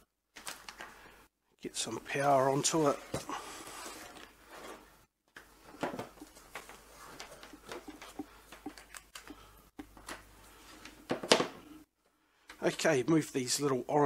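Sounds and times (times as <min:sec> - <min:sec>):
cable handling rustles: 0:02.6 - 0:11.2.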